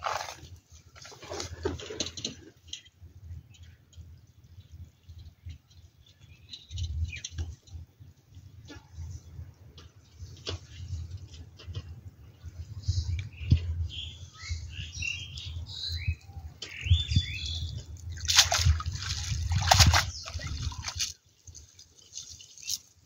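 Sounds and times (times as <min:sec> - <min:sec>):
water sloshing and splashing: 0:00.0 - 0:02.7, 0:17.5 - 0:23.0
birds chirping: 0:12.2 - 0:23.0.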